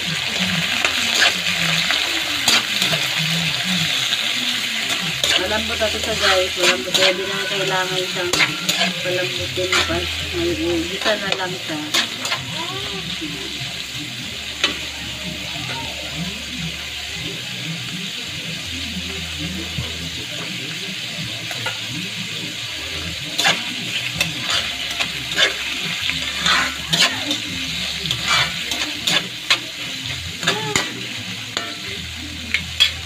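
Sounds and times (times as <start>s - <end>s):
metal spatula scraping a pan: 0.0s - 12.6s, 22.9s - 33.0s
food sizzling in a wok: 0.0s - 33.0s.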